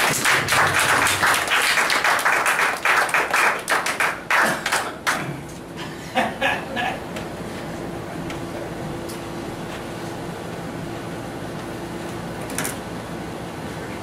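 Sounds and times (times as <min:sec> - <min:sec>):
crowd applauding: 0:00.0 - 0:05.2.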